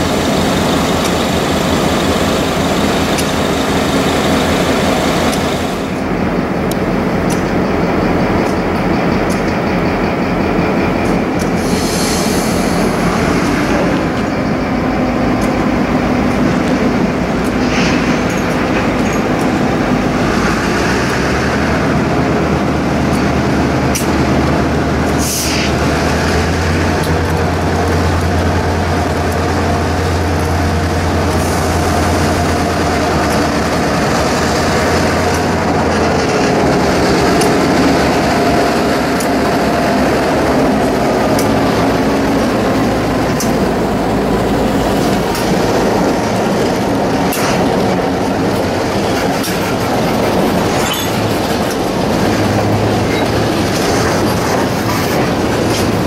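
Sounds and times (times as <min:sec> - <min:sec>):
wheels clicking over rail joints: 0:00.0 - 0:12.0, 0:12.7 - 0:56.0
diesel locomotive engines passing: 0:00.0 - 0:56.0
faint wheel squeal: 0:50.8 - 0:51.2.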